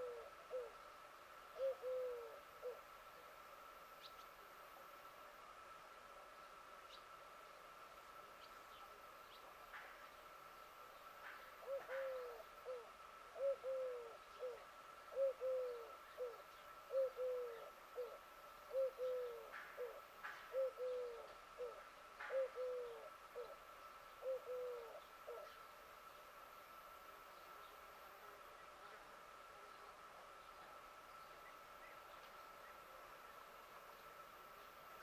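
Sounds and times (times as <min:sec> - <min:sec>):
bird cooing: 0:00.0 - 0:03.2, 0:11.2 - 0:25.7.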